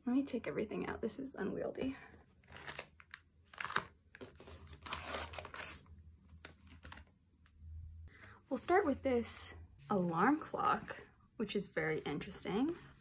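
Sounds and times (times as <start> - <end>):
plastic and cardboard crinkling: 2.4 - 7.1.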